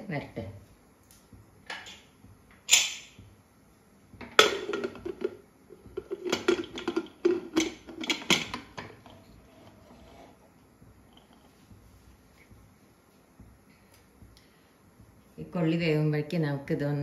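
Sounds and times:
metal lid clanking: 4.2 - 5.4, 6.0 - 9.2
metal lid scraping: 6.0 - 10.4.

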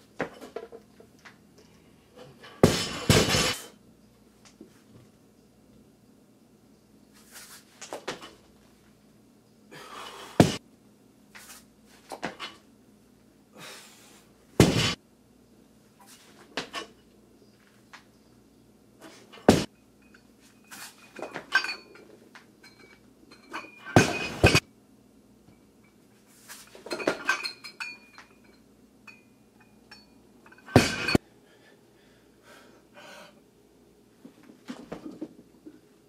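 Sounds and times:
barbell dropped on concrete: 2.6 - 3.7, 10.4 - 10.6, 14.6 - 15.0, 23.6 - 24.6, 30.6 - 31.2.

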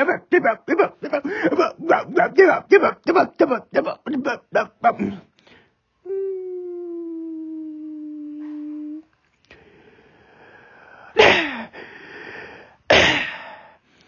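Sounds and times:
person humming a note: 6.1 - 9.1
breathy hiss: 8.4 - 14.0.

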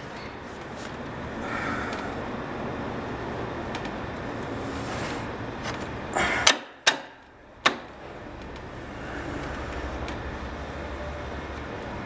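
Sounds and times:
steady background hum: 0.0 - 12.0
sharp metallic clicks: 6.4 - 8.7.

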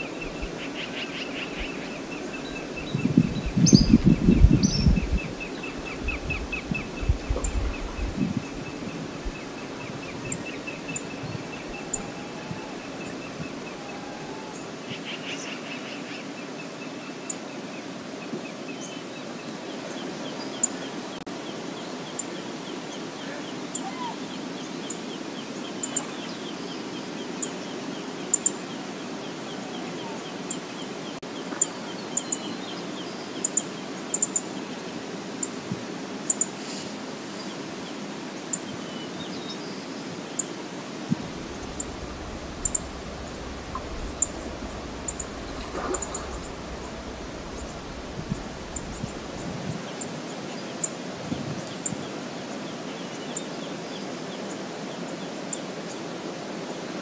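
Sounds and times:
flowing river water: 0.0 - 57.0
low rumble: 2.8 - 13.8, 41.1 - 49.8
high bird chirps: 41.4 - 49.5.

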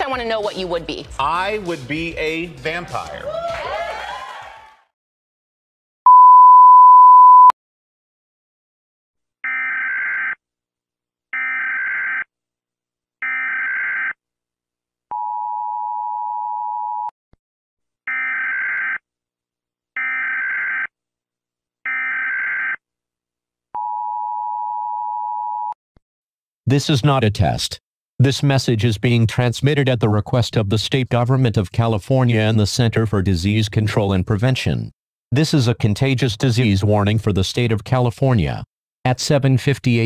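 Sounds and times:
steady one-pitch beep: 6.1 - 7.5.

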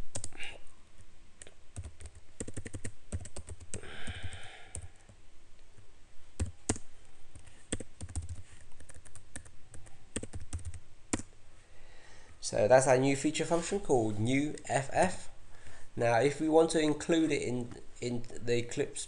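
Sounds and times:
computer keyboard typing: 0.1 - 0.4, 1.8 - 5.1, 6.4 - 11.3.

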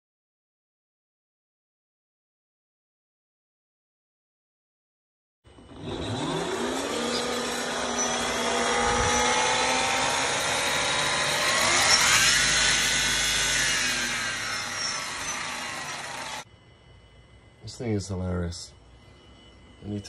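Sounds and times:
electric motor and gear whine: 5.5 - 16.5.

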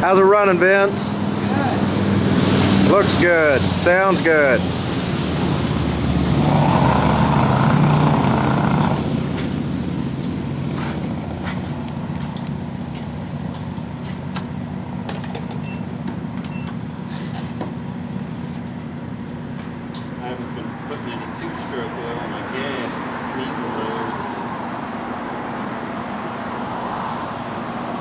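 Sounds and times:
loud rushing noise: 1.1 - 11.3
engine idling: 7.7 - 22.5.

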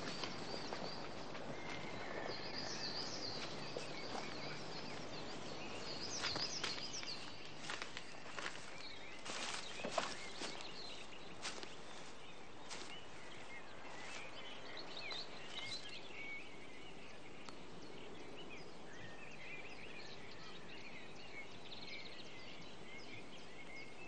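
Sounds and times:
footsteps through long grass: 0.0 - 16.2
birds chirping: 0.0 - 24.0.

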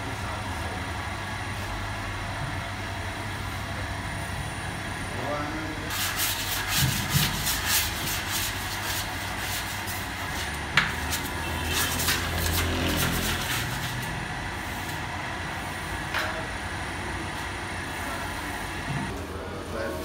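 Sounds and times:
dough mixer humming: 0.0 - 19.2
dough rubbing and scraping: 5.9 - 14.2.

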